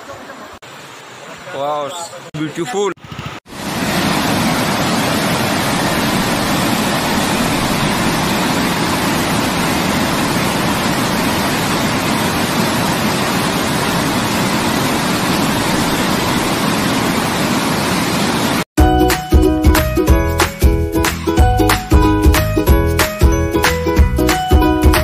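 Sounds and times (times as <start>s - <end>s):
stream rushing over stones: 0.0s - 18.7s.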